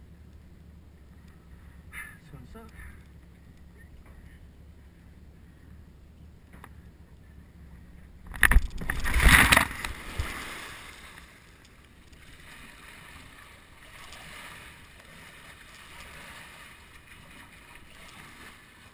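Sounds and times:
faint lapping water: 0.0 - 18.9
kayak hull slapping water: 8.2 - 18.9
loud splash: 8.5 - 11.2.

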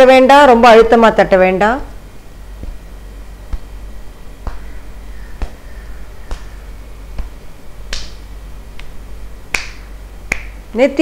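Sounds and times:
hands tapping on scalp: 2.6 - 2.8, 3.5 - 3.8, 4.4 - 4.8, 5.4 - 10.6.

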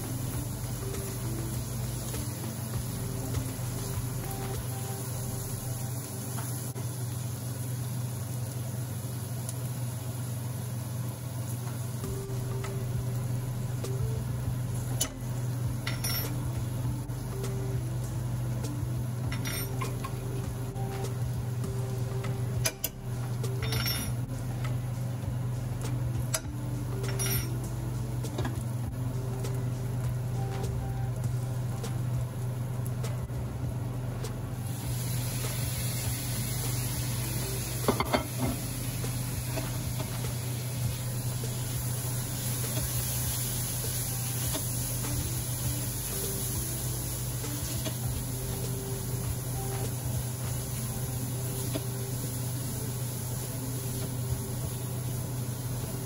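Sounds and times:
onions sizzling in a frying pan: 0.0 - 56.0
low hum: 11.8 - 56.0.

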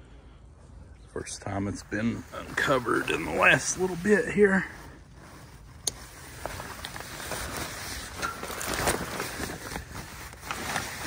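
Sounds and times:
fabric cover rustling and scraping: 2.2 - 11.0.

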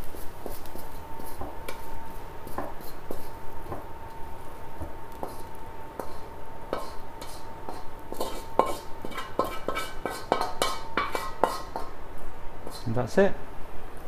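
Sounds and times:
wooden spatula scraping a wok: 0.0 - 3.4, 5.2 - 12.0.

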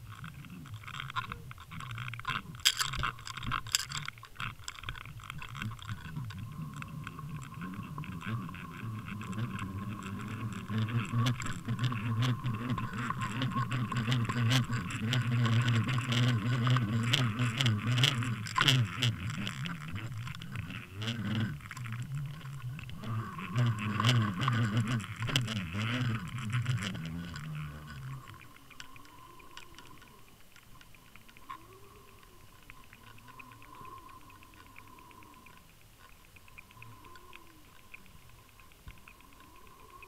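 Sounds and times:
low steady hum: 0.0 - 40.0
underwater water noise: 0.0 - 40.0
rattling and ticking: 0.7 - 28.9.

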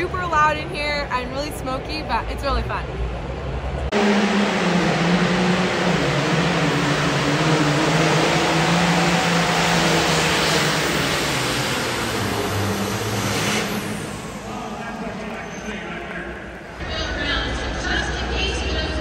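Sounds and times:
tractor engine running flat out: 3.9 - 18.7.

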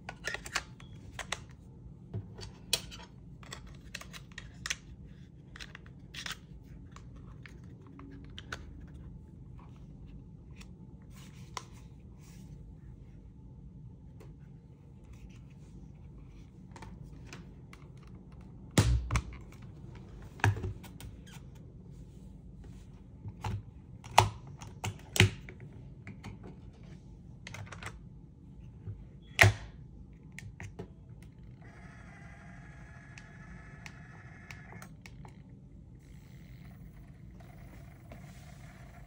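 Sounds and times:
cd player whirring: 31.2 - 39.0.

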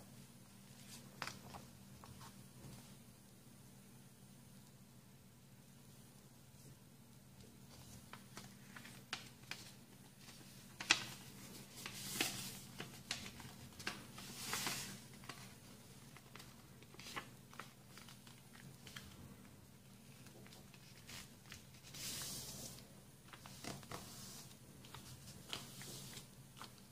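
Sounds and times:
paper being folded and creased: 7.7 - 26.9.

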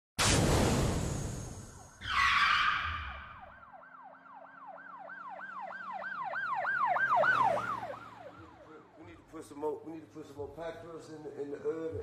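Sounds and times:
sudden hit: 0.2 - 1.9
siren yelping: 2.0 - 9.0.

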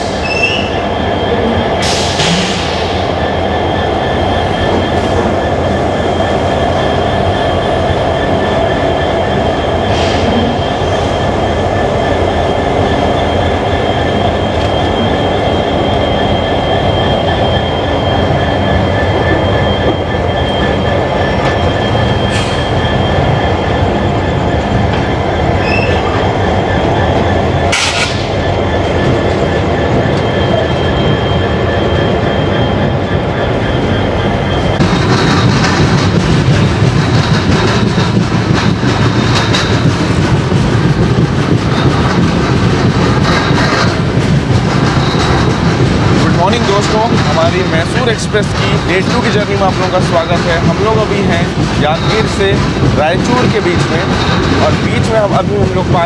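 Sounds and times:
high whine: 0.0 - 56.0
train wheels on rails: 0.0 - 56.0
sharp clacks of wheels: 34.8 - 56.0.

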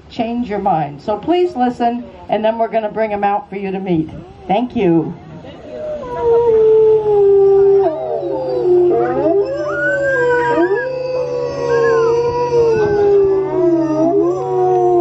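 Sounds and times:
wolves howling: 5.6 - 15.0.

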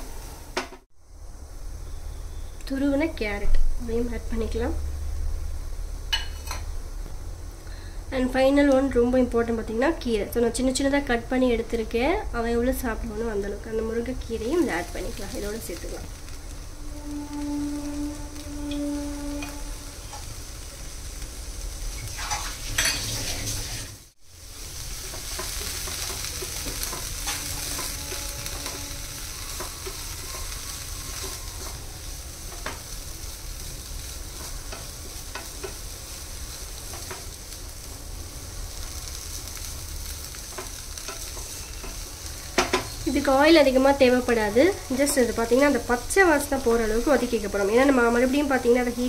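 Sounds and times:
vegetables sizzling in a pan: 0.0 - 49.0
spatula scraping a pan: 16.0 - 20.6, 21.9 - 23.8, 24.7 - 33.3, 40.3 - 43.1.

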